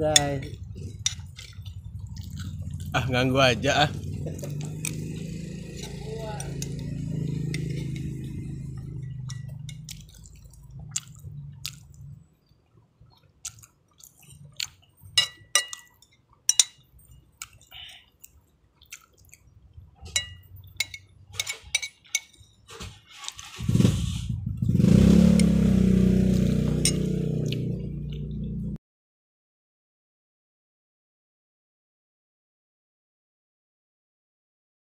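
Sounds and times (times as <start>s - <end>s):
loud low humming drone: 0.0s - 10.0s, 23.7s - 28.8s
metal spoon scraping a plate: 0.8s - 1.8s, 5.8s - 10.1s, 20.1s - 24.3s, 26.7s - 27.1s.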